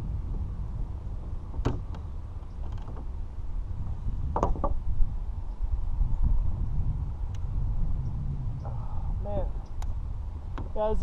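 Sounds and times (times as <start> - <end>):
wind rumbling on microphone: 0.0 - 11.0
creaks and clicks from kayak gear: 1.4 - 3.2, 4.2 - 4.9, 9.6 - 10.9.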